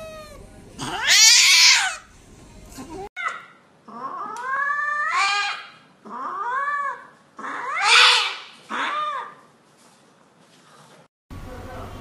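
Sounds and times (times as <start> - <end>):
cat yowling in distress: 0.0 - 2.0, 3.0 - 9.4.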